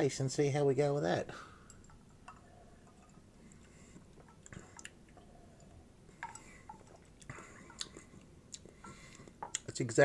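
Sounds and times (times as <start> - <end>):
person sipping and swallowing: 3.5 - 9.7.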